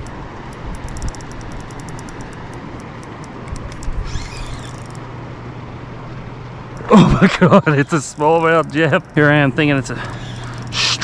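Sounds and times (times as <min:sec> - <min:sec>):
fishing reel ticking: 0:00.0 - 0:05.0, 0:07.8 - 0:09.4, 0:10.0 - 0:11.0
low steady hum: 0:00.0 - 0:11.0
wind: 0:00.0 - 0:11.0
hissy surge: 0:10.2 - 0:11.0.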